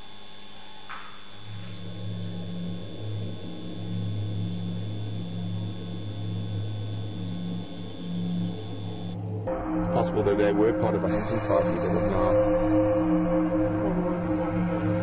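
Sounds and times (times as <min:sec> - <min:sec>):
electrical hum with high whine: 0:00.0 - 0:09.5
low wavering hum: 0:00.9 - 0:15.0.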